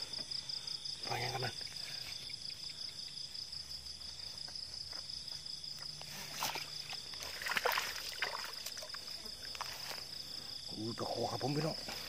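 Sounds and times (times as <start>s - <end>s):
night insects chirring: 0.0s - 12.0s
splashing in muddy water: 6.1s - 9.8s.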